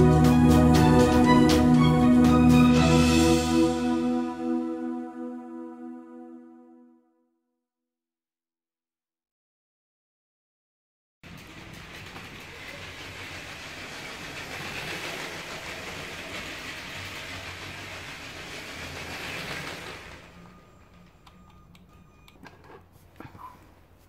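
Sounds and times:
toy train motor whirring: 11.3s - 21.2s
toy train wheels clattering: 11.3s - 22.8s.

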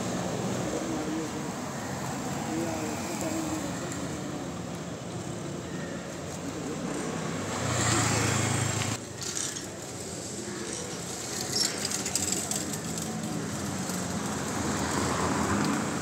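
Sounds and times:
street traffic noise: 0.0s - 16.0s.

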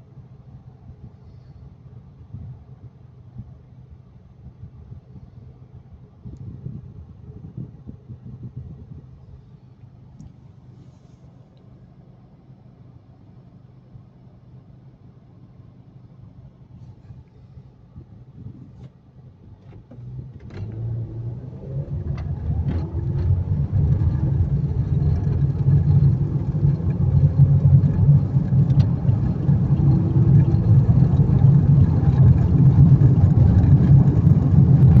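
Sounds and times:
car engine and road rumble: 0.0s - 35.0s.

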